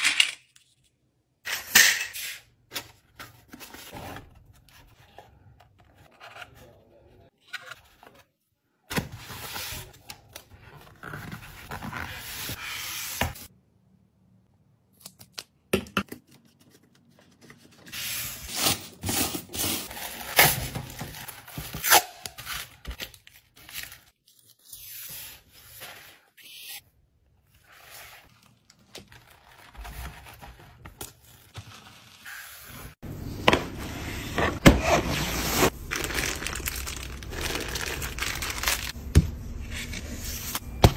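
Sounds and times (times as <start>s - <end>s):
paper and cardboard crinkling: 27.6s - 33.0s, 34.9s - 39.0s.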